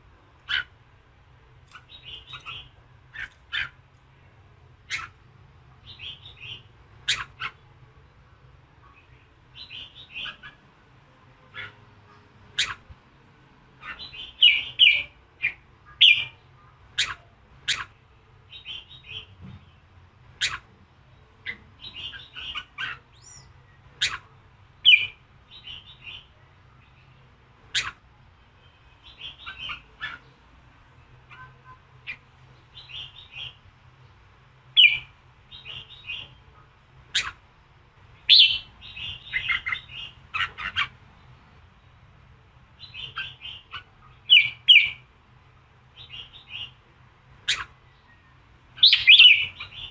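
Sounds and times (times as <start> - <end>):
faint low hum: 0.0 - 49.9
bulbul singing: 1.7 - 3.8, 4.8 - 7.7, 8.8 - 10.6, 12.5 - 12.9, 13.8 - 30.4, 31.2 - 36.5, 37.1 - 37.4, 38.1 - 42.1, 42.7 - 45.1, 45.9 - 46.8, 47.4 - 49.9.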